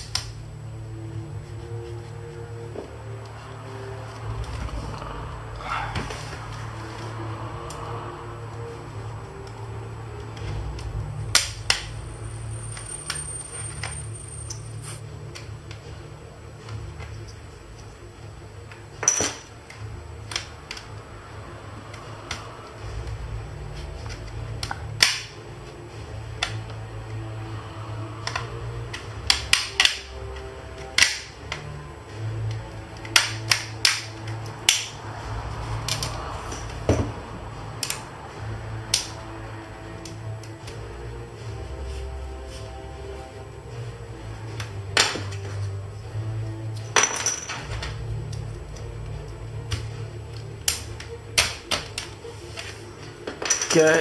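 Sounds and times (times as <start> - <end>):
plastic clips snapping loose: 28.2 - 31.7, 32.5 - 34.9.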